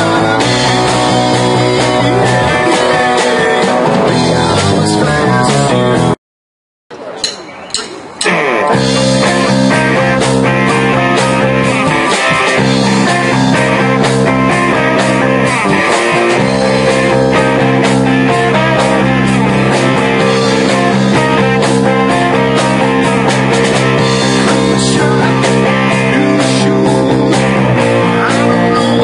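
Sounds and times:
rock band playing loud: 0:00.0 - 0:06.2, 0:07.4 - 0:29.0.

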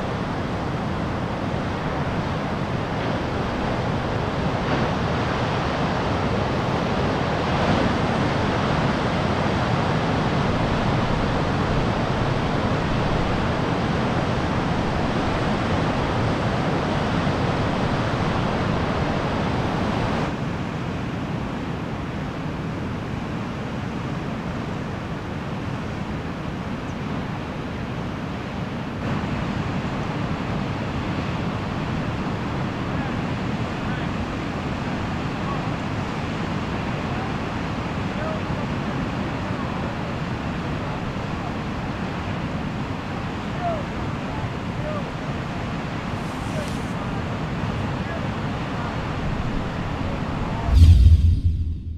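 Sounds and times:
surf breaking over rocks: 0:45.8 - 0:47.2.

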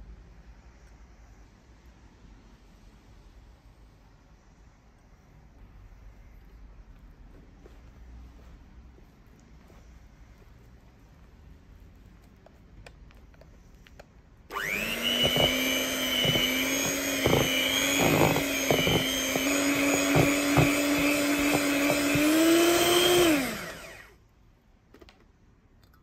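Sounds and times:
electric hand mixer running: 0:14.5 - 0:24.2.

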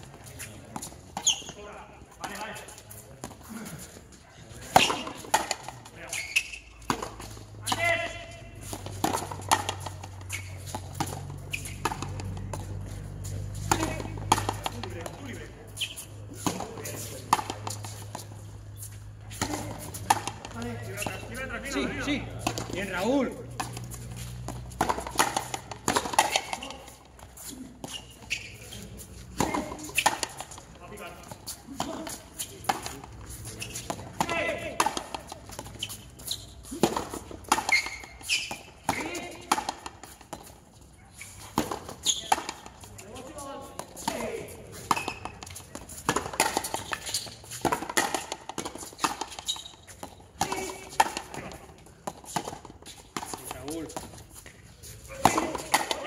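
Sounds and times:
racket hitting rubber ball: 0:04.6 - 0:15.4, 0:16.3 - 0:18.3, 0:19.3 - 0:28.0, 0:29.2 - 0:30.7, 0:31.7 - 0:35.8, 0:36.6 - 0:40.5, 0:41.4 - 0:42.9, 0:43.6 - 0:54.1, 0:55.1 - 0:56.0.

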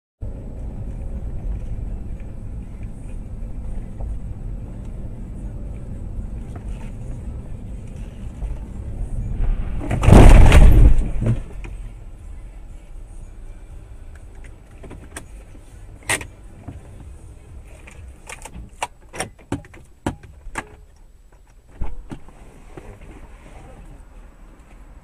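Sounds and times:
car driving rumble: 0:00.2 - 0:25.0
car crash crunching metal: 0:09.4 - 0:11.7.

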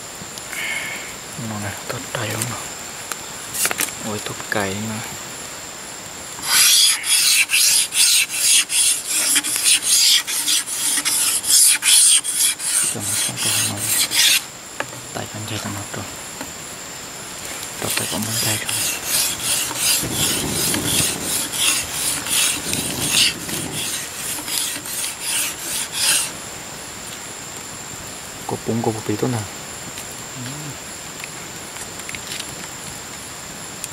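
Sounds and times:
blade scraping bamboo: 0:03.6 - 0:04.0, 0:06.4 - 0:14.9, 0:17.4 - 0:26.4.

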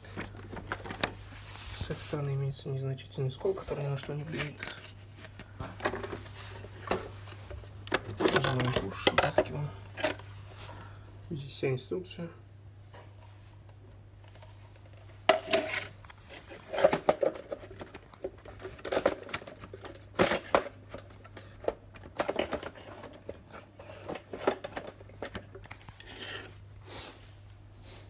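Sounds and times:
hard plastic clicking and rustling: 0:00.0 - 0:01.2, 0:03.6 - 0:10.3, 0:13.0 - 0:26.5
steady low hum: 0:00.0 - 0:28.0.

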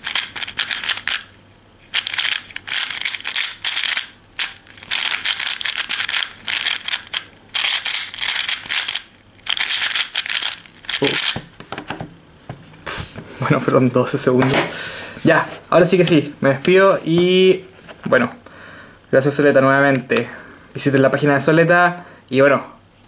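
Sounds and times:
puzzle cube clicking: 0:02.0 - 0:11.5.

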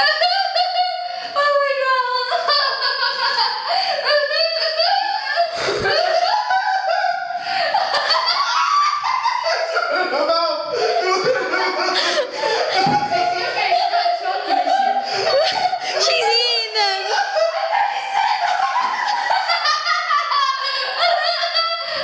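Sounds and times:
woman laughing and squealing: 0:00.0 - 0:10.2, 0:10.8 - 0:22.0.

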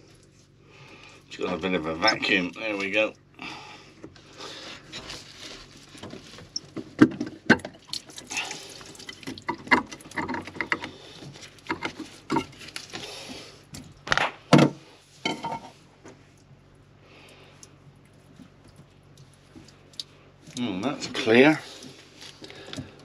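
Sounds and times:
seawater sloshing and dripping: 0:05.8 - 0:14.0
knocks and clunks of parts: 0:06.0 - 0:07.9, 0:09.1 - 0:12.5, 0:14.1 - 0:15.7.

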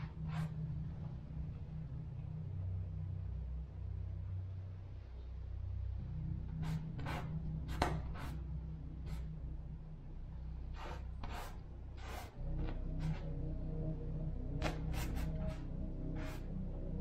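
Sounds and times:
steady low hum: 0:00.0 - 0:17.0
paintbrush strokes on canvas: 0:10.8 - 0:13.3, 0:14.6 - 0:16.5.

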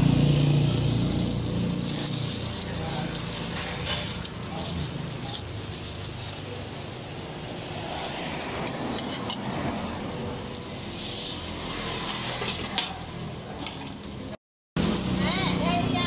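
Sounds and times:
dishes and utensils clinking: 0:03.4 - 0:05.4.

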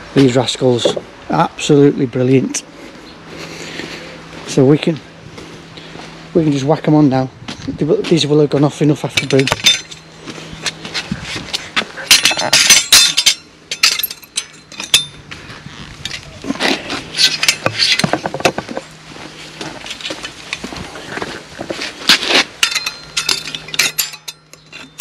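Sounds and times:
metal tools clinking on concrete blocks: 0:08.6 - 0:10.8, 0:12.0 - 0:15.3, 0:16.0 - 0:18.9, 0:22.1 - 0:25.0.

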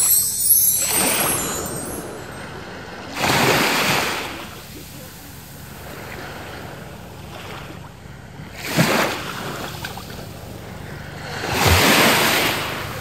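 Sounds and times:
small waves washing on beach: 0:03.1 - 0:13.0.

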